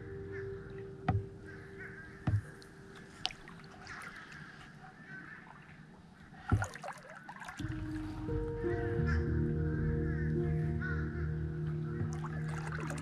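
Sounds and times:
soft held music chord: 0.0 - 3.3, 7.6 - 13.0
crows cawing: 0.0 - 5.6, 9.0 - 12.2
kayak paddle trickling water: 0.3 - 13.0
sharp knocks: 1.1 - 1.3, 2.2 - 2.6.

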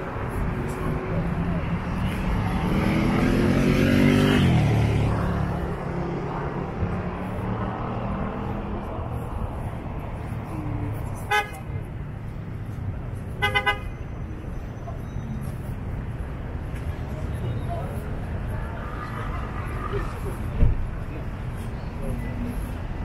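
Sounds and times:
traffic rumble: 0.0 - 23.0
vehicle engine revving: 2.2 - 8.4
car horn toot: 13.4 - 14.0.

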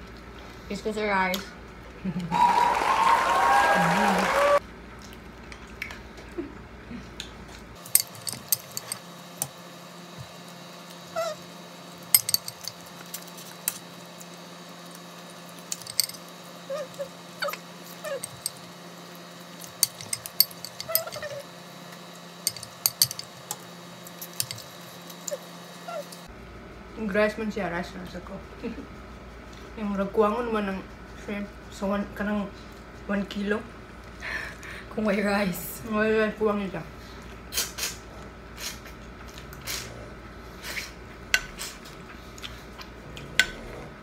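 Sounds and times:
steady low hum: 6.3 - 37.5
spoon clicking against bowl: 7.9 - 9.5, 12.2 - 12.8, 15.7 - 16.2, 17.4 - 18.6, 19.6 - 21.3, 22.5 - 23.3, 24.2 - 24.6
chewing: 41.4 - 44.0.

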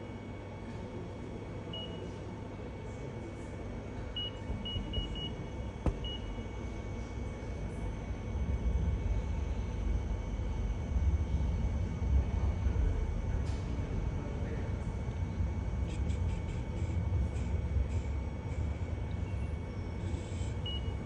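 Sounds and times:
touchscreen beeps: 4.2 - 6.4.

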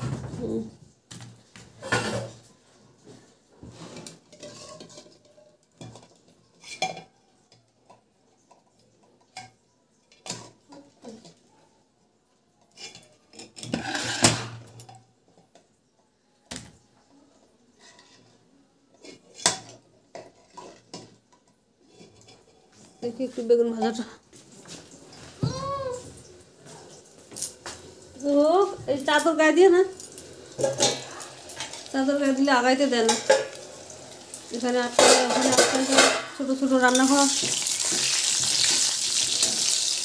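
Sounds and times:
clinks and knocks of cookware: 1.1 - 2.4, 4.0 - 11.4, 12.7 - 15.7, 19.2 - 23.1, 29.0 - 33.7, 34.4 - 38.8.

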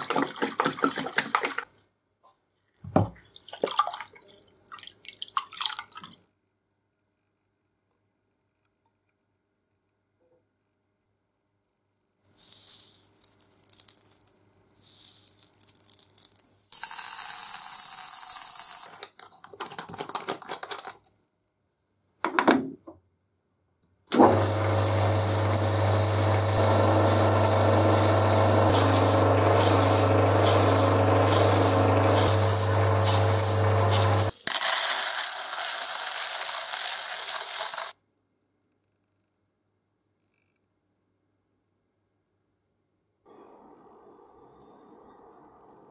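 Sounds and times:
pellets rattling into metal can: 12.4 - 18.9, 24.4 - 38.0
metal lathe humming: 24.2 - 34.3.

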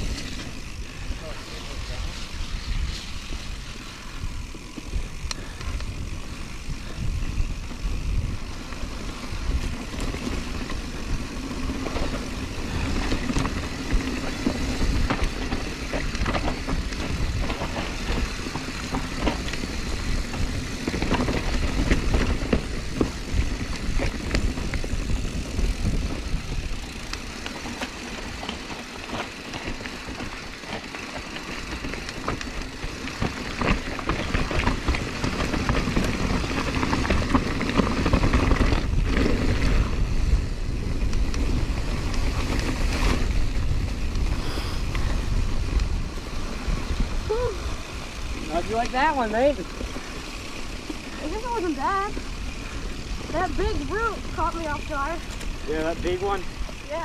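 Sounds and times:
wind buffeting microphone: 0.0 - 28.4
bike rattling and knocking: 0.0 - 57.0
tyres rolling on dirt: 7.6 - 57.0.

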